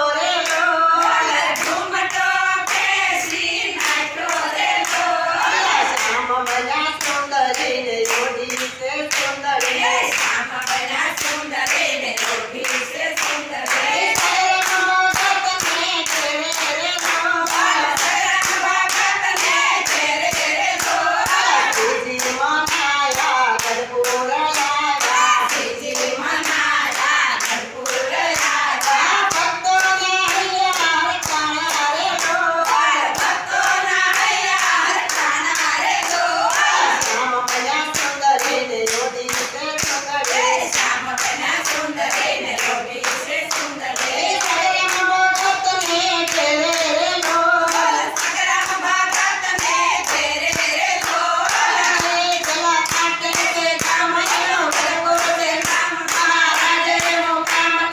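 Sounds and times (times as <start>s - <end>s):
rhythmic hand clapping: 0.0s - 57.9s
women singing in unison: 0.0s - 57.9s.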